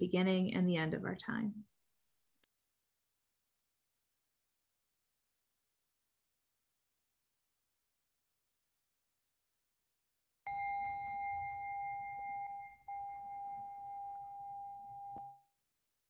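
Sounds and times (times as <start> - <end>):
singing bell ringing: 10.5 - 15.4.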